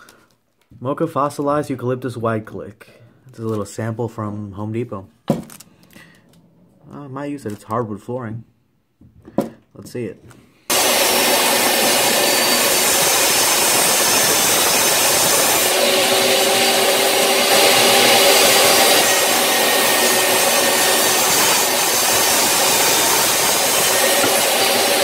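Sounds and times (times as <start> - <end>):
table saw whining: 10.7 - 25.0.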